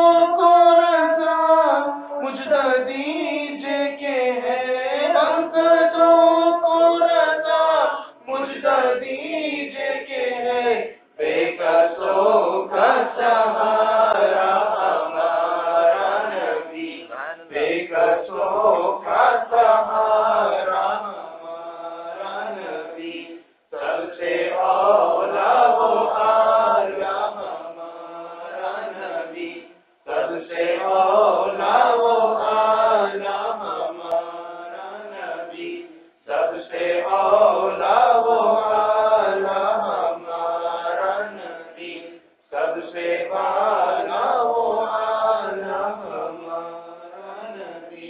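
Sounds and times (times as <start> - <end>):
men chanting together: 1.5 - 48.0.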